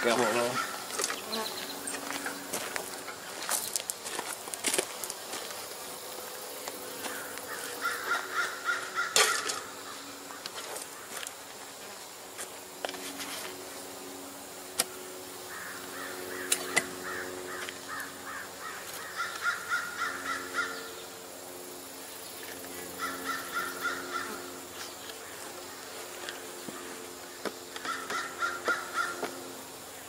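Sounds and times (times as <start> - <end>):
bird calling harshly: 0.0 - 1.8, 7.1 - 10.4, 15.5 - 21.0, 23.0 - 24.6, 27.8 - 29.4
bees humming: 0.0 - 30.0.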